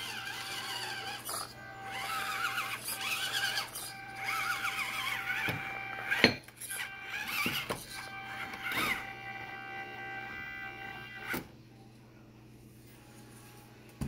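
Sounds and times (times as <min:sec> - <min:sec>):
toy truck motor whining: 0:00.0 - 0:11.4.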